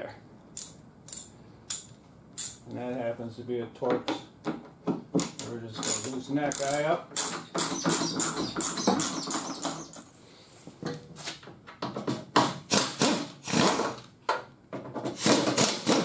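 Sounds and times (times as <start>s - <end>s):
ratchet clicking: 5.8s - 7.8s
pneumatic tool buzzing: 12.7s - 14.0s.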